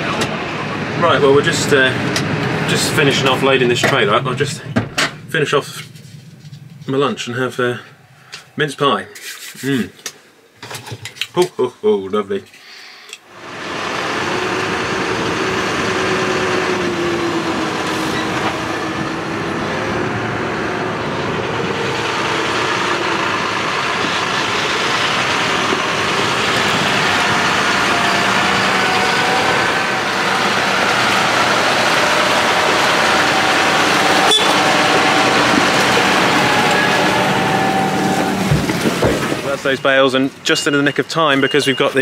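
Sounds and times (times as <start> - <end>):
tractor diesel engine running: 0.0 - 8.6, 13.3 - 42.0.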